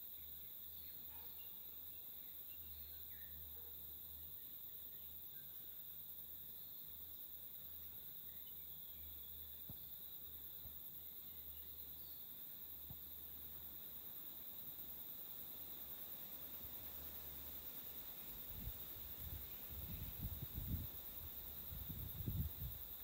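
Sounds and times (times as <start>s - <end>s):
faint chirps: 0.0s - 5.8s
insects buzzing: 0.0s - 23.0s.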